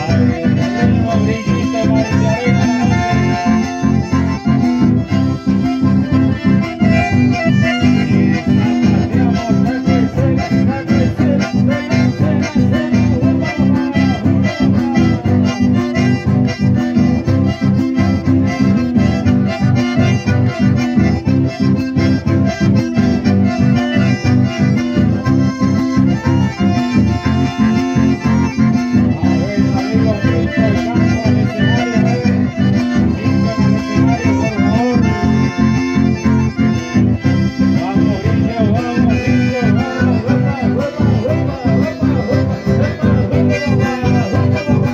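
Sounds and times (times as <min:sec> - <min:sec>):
accordions playing: 0:00.0 - 0:44.9
acoustic guitars strumming: 0:00.0 - 0:44.9.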